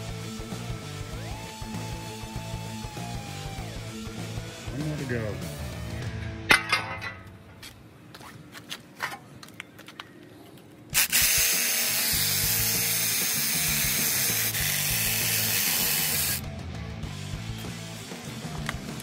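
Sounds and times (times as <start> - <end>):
background music: 0.0 - 7.5, 11.0 - 19.0
cordless drill boring into steel: 11.0 - 16.4.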